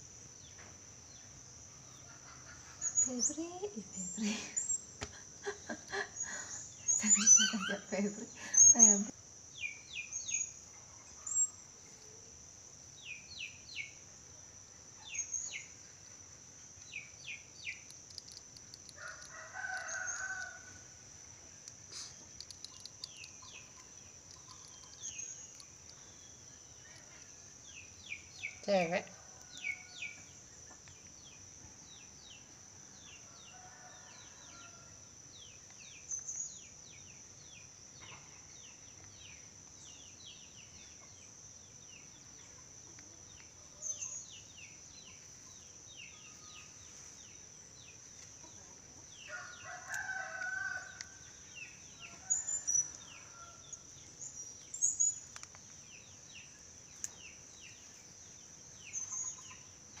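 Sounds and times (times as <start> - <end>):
bird chirps: 6.2 - 11.6, 58.9 - 60.0
rooster crowing: 19.0 - 21.0, 33.3 - 35.0, 49.3 - 51.2, 52.1 - 53.8.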